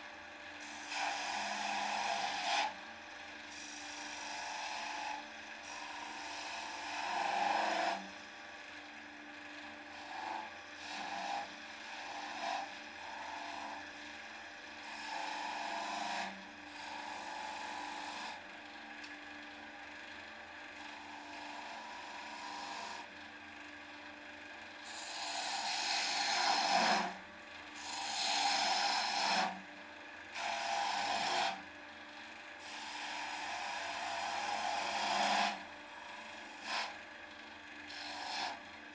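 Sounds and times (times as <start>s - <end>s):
wood lathe humming: 0.0s - 38.9s
turning tool scraping wood: 0.6s - 2.8s, 3.5s - 8.2s, 9.9s - 14.1s, 14.7s - 18.4s, 20.9s - 23.1s, 24.8s - 27.2s, 27.8s - 29.6s, 30.3s - 31.6s, 32.6s - 37.0s, 37.9s - 38.7s.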